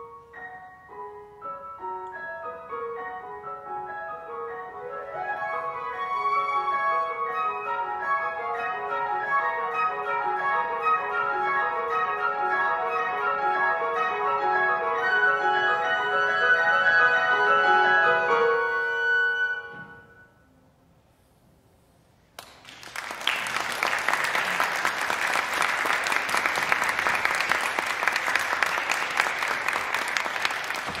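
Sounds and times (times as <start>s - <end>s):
flute: 0.0s - 20.5s
piano: 0.0s - 31.0s
audience applause: 22.4s - 31.0s.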